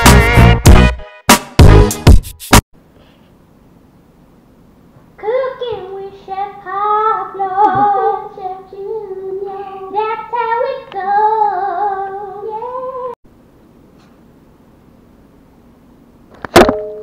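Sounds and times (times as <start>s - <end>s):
high voice singing: 7.1s - 8.4s.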